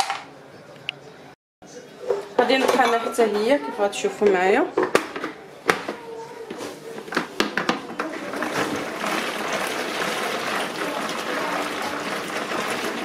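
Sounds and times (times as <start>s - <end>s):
food chopper churning tomatoes: 8.0s - 13.0s.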